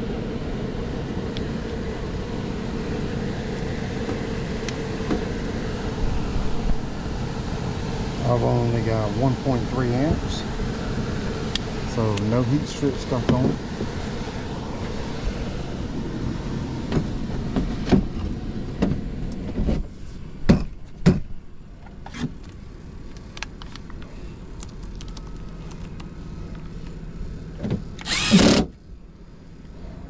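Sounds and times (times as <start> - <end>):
air handler blower noise: 0.0 - 30.0
cordless impact driver spinning: 28.0 - 28.7.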